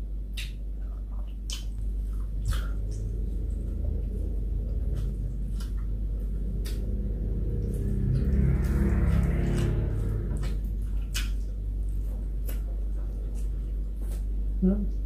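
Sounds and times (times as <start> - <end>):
low steady hum: 0.0 - 15.0
person chewing and smacking food: 0.1 - 14.6
wet mouth clicks: 1.2 - 3.5, 6.5 - 7.1, 10.4 - 11.5.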